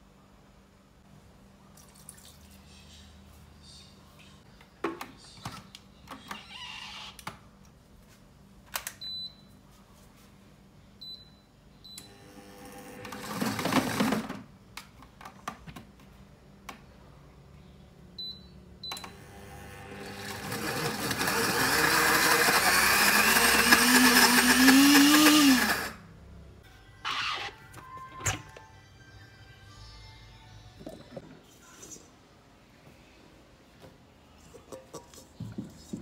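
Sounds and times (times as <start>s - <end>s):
blender motor whirring: 19.3s - 26.0s.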